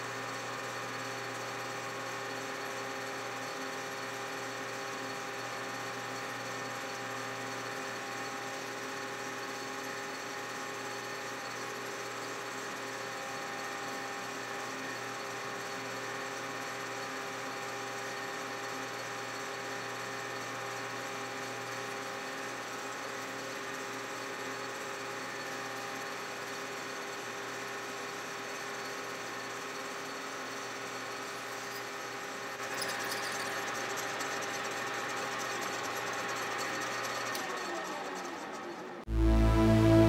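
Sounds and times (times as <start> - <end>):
low hum: 39.1 - 40.0.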